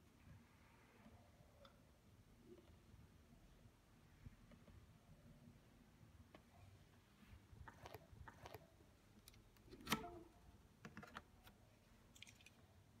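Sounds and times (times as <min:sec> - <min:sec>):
faint clicks and taps: 0:04.4 - 0:04.9.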